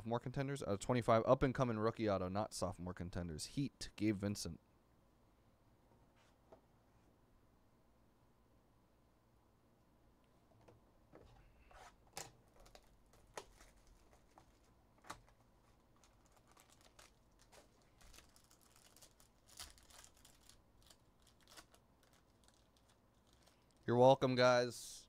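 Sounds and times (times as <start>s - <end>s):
foil pack crinkling: 12.2s - 23.9s.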